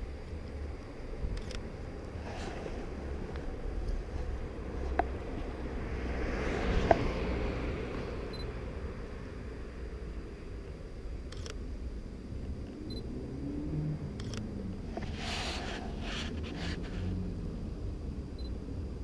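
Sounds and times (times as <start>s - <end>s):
street traffic rumble: 0.0s - 19.0s
camera shutter clicks: 1.3s - 1.6s, 11.3s - 11.6s, 14.2s - 14.5s.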